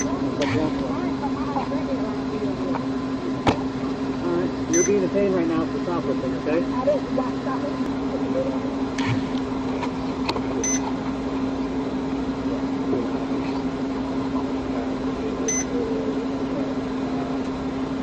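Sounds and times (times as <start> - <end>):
steady hum and hiss: 0.0 - 18.0
short electronic beep: 4.7 - 5.0, 10.6 - 10.8, 15.5 - 15.7.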